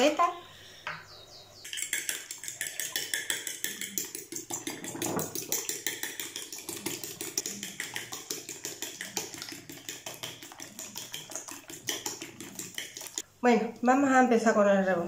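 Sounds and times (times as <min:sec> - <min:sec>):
fork beating egg on plate: 0:01.7 - 0:13.2.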